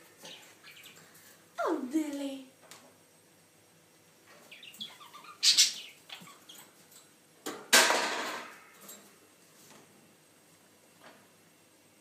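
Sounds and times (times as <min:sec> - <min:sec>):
budgerigar chirping: 0:04.5 - 0:06.6.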